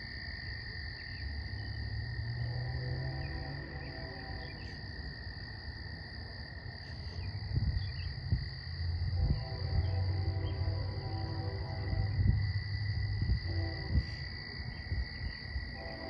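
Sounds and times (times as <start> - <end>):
insects and frogs calling: 0.0 - 16.0
low rumble: 6.8 - 16.0.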